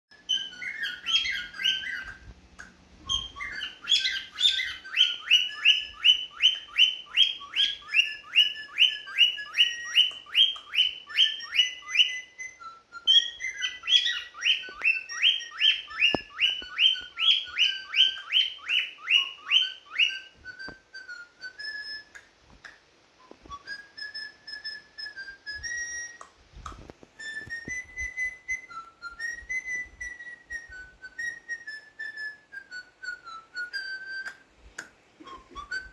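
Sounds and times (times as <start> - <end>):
cockatiel sharp chirps: 0.1 - 22.2
cockatiel whistled notes: 0.1 - 35.9.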